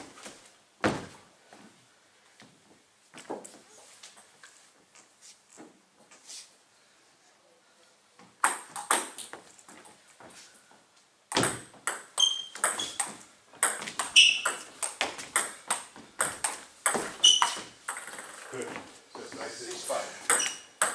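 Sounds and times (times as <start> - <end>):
table tennis ball hits: 8.4 - 9.3, 11.3 - 18.4, 20.2 - 20.9
short squeaks: 12.2 - 13.0, 14.2 - 14.6, 17.2 - 17.8, 20.3 - 20.8.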